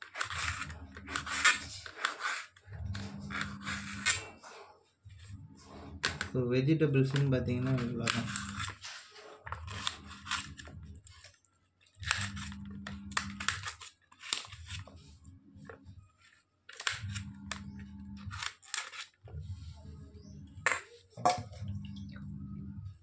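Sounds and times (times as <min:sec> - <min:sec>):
low hum: 0:16.8 - 0:18.5, 0:19.3 - 0:23.0.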